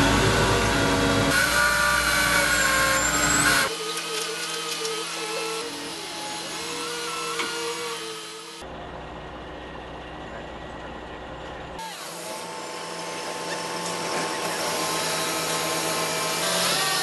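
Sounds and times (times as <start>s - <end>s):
whining tones: 0.0s - 4.8s
heavy diesel construction equipment: 0.0s - 7.6s, 8.6s - 17.0s.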